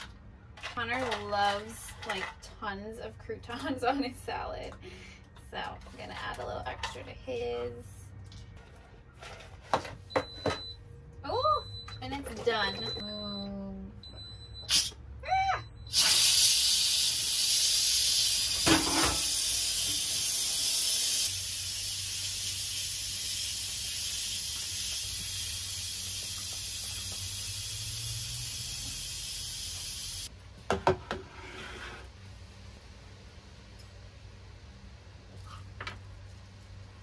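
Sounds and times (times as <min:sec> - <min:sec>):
pressure cooker steam hissing: 0:15.9 - 0:30.3.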